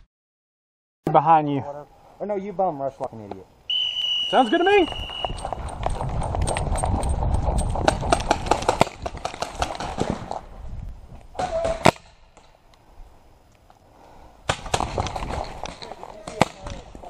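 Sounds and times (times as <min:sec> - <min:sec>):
low camera rumble: 0:05.0 - 0:11.7
loud sharp crack: 0:11.4 - 0:12.5.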